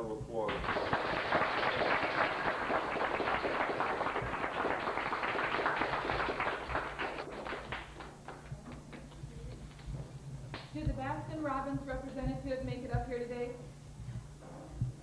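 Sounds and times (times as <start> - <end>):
audience applauding: 0.5 - 9.2.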